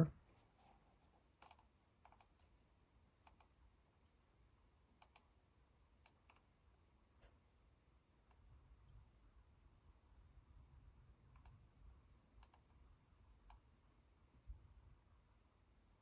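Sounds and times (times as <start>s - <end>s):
computer mouse clicks: 1.3s - 2.6s, 3.2s - 3.6s, 4.9s - 5.4s, 6.0s - 6.5s, 11.3s - 11.6s, 12.4s - 12.8s, 13.4s - 13.7s.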